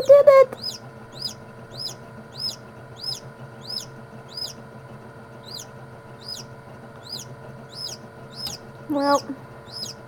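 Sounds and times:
chick peeping: 0.0s - 4.6s, 5.4s - 10.0s.

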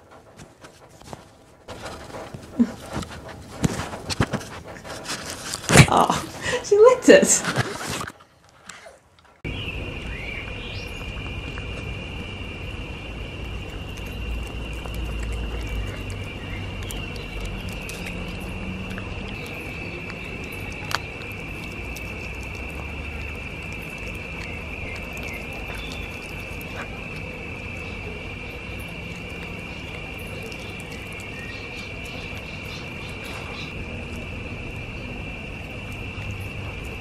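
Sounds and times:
insects chirring: 9.4s - 37.0s
low rumble: 9.4s - 37.0s.

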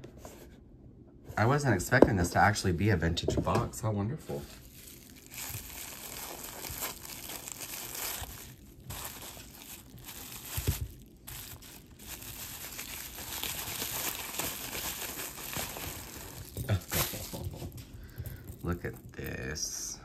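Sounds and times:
wrapping crinkling and rustling: 4.4s - 19.2s.

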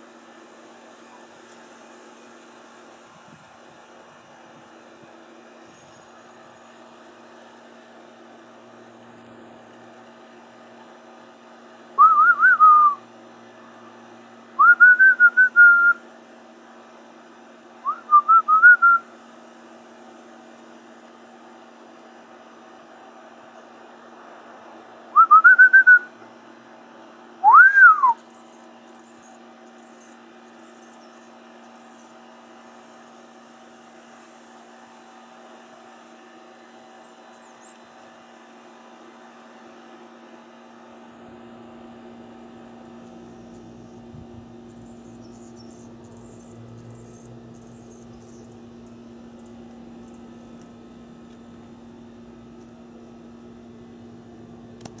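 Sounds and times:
steady low hum: 0.0s - 55.0s
loud whistled notes: 27.4s - 28.2s.

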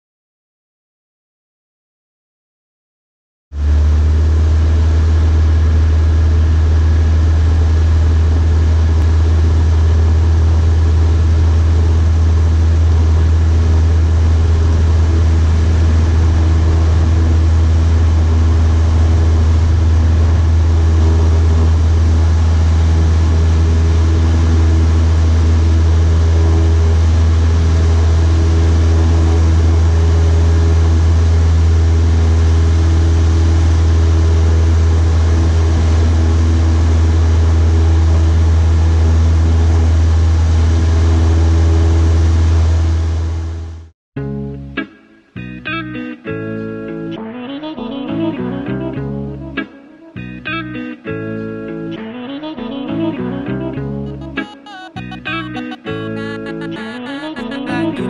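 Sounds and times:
airplane engine and propeller drone: 3.6s - 43.8s.

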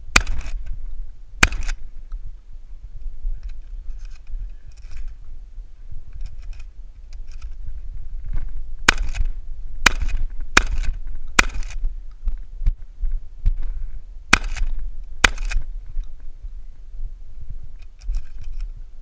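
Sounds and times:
shotgun shots with echo: 0.1s - 0.6s, 1.4s - 1.8s, 8.9s - 11.8s, 14.3s - 15.6s.

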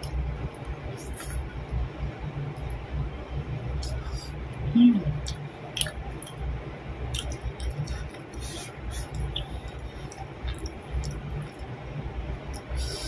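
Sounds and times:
person chewing food: 5.2s - 6.4s, 7.1s - 11.7s.

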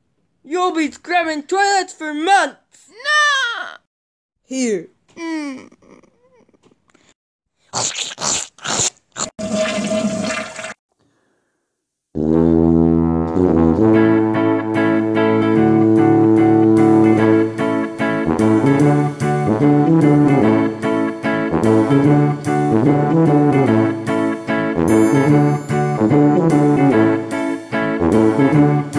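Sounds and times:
plunger splashing in toilet: 9.3s - 10.8s
toilet flushing: 9.4s - 10.8s.

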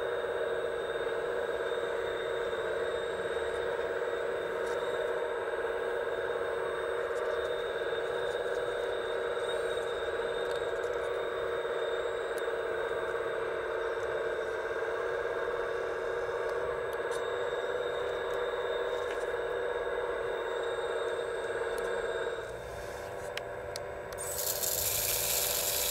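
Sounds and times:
hydraulic pump whining: 24.2s - 25.9s.

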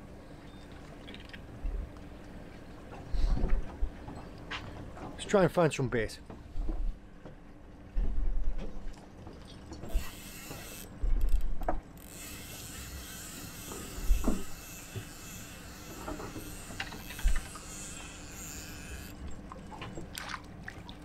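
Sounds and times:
fishing reel whirring and clicking: 9.9s - 19.4s.

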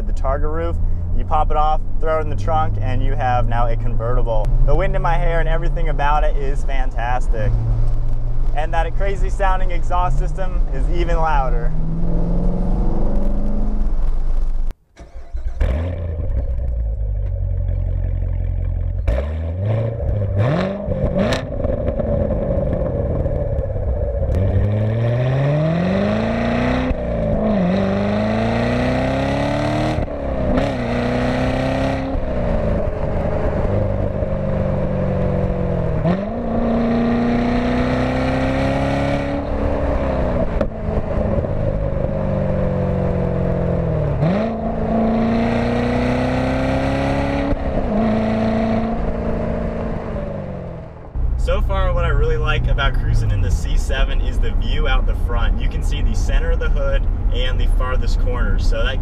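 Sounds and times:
sports car engine revving through gears: 9.6s - 51.1s.

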